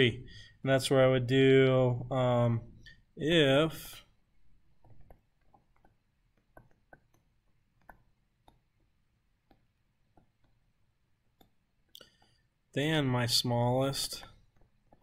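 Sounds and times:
stylus tapping on touchscreen: 0:04.6 - 0:12.5, 0:14.1 - 0:15.0.

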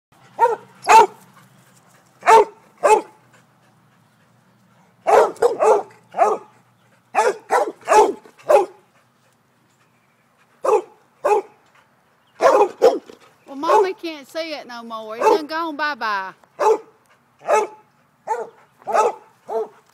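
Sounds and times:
dog barking: 0:00.4 - 0:01.2, 0:02.2 - 0:03.2, 0:05.0 - 0:06.5, 0:07.2 - 0:08.8, 0:10.6 - 0:11.6, 0:12.4 - 0:13.1, 0:15.2 - 0:15.5, 0:16.6 - 0:19.8.

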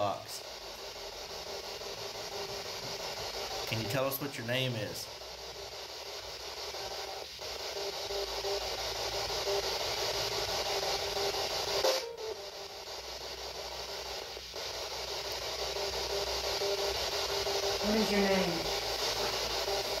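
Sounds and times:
radio static hiss: 0:00.0 - 0:20.0
short radio blip: 0:11.8 - 0:12.4.

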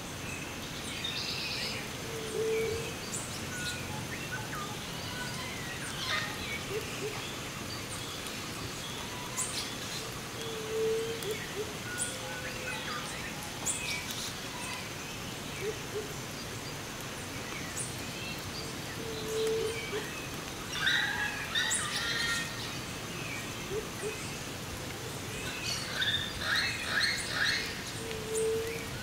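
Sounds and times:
light rain hiss: 0:00.0 - 0:29.0
birds chirping and singing: 0:00.5 - 0:29.0.

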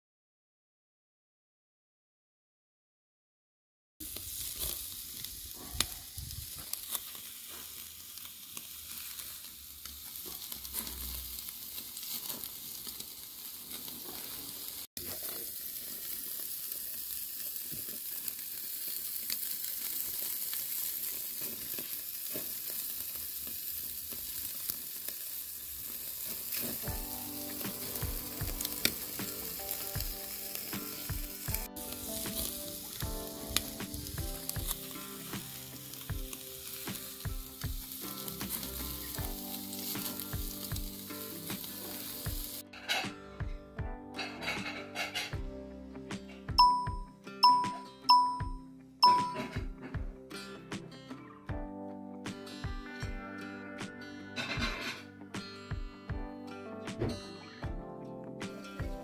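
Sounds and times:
meat sizzling on charcoal grill: 0:04.0 - 0:43.6, 0:44.2 - 0:48.2, 0:54.4 - 0:55.0, 0:58.4 - 0:59.0.

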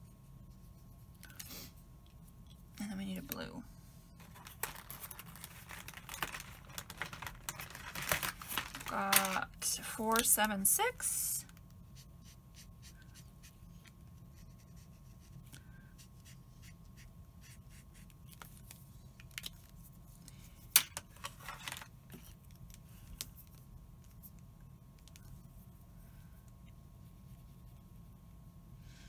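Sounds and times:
faint steady hum: 0:00.0 - 0:29.0
paper rustle: 0:04.2 - 0:09.5.

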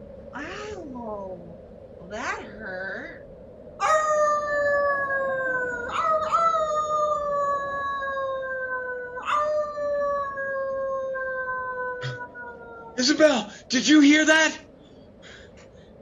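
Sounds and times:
wolf howling: 0:03.8 - 0:13.4.

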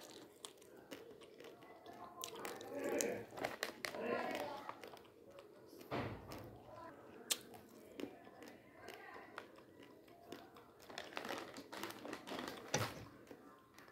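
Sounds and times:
plastic packet crinkling: 0:00.0 - 0:05.0, 0:10.2 - 0:13.8.

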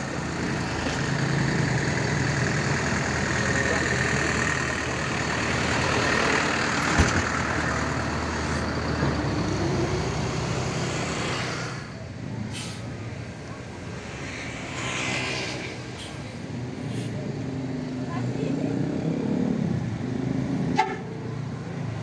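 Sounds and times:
diesel bus engines running: 0:00.0 - 0:22.0
air brake hisses: 0:12.5 - 0:12.9.

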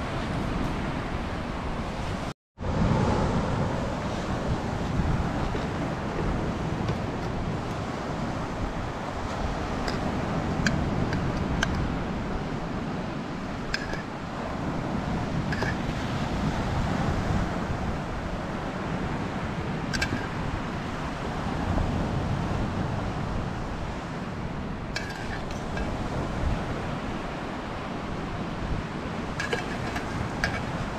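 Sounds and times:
wind: 0:00.0 - 0:30.9
utensil clinking against metal pot: 0:13.8 - 0:14.1, 0:25.0 - 0:25.9, 0:29.4 - 0:30.7.

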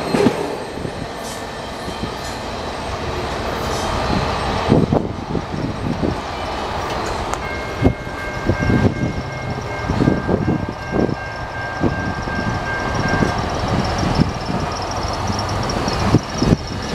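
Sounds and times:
train rumbling: 0:00.0 - 0:16.9.

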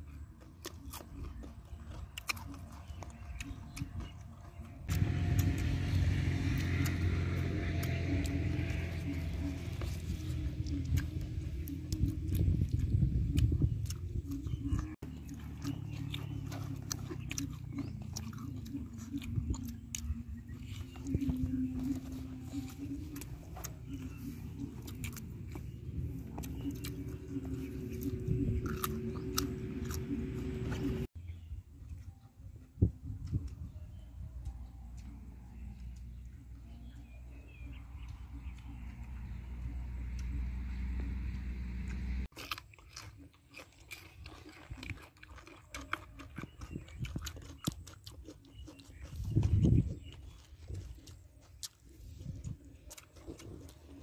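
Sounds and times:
person chewing crunchy food: 0:00.0 - 0:31.2, 0:31.8 - 0:54.0
low rumble: 0:02.8 - 0:42.3.

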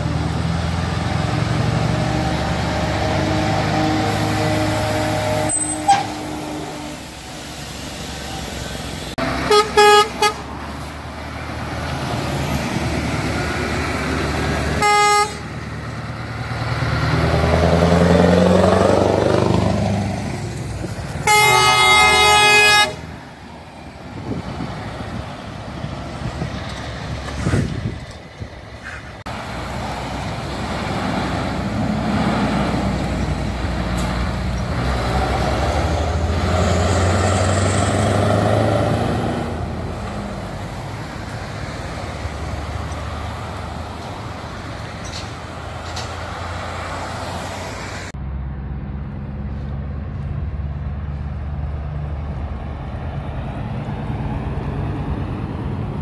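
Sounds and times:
truck diesel engine passing: 0:00.0 - 0:56.0
truck air horn blast: 0:02.9 - 0:07.6, 0:09.3 - 0:10.6, 0:14.7 - 0:15.6, 0:21.2 - 0:23.1.

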